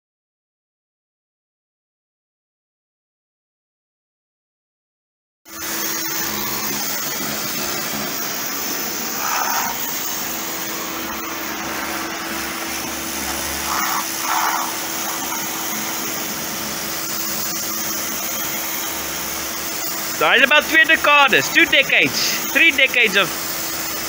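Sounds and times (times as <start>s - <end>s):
pressure washer pump humming: 5.5s - 24.0s
water jet hissing on concrete: 5.5s - 24.0s.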